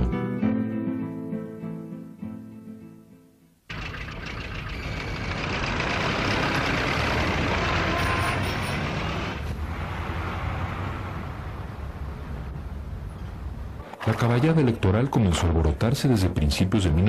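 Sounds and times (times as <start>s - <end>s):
cars passing: 3.7s - 14.2s.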